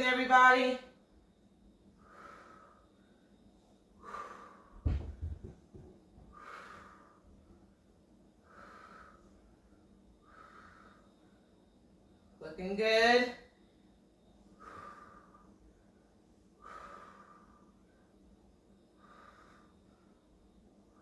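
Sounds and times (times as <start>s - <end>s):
woman breathing with exertion: 1.9s - 11.8s, 13.7s - 21.0s
low thud: 4.8s - 6.0s.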